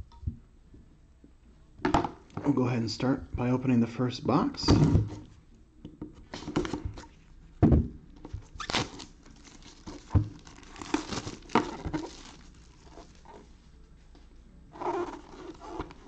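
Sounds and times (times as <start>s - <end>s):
plastic wrap tearing and crinkling: 8.6s - 13.3s.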